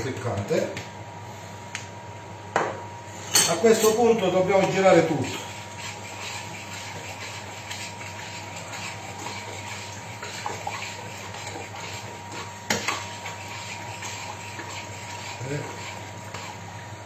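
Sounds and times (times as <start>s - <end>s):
spoon scraping a metal pot: 5.2s - 16.6s.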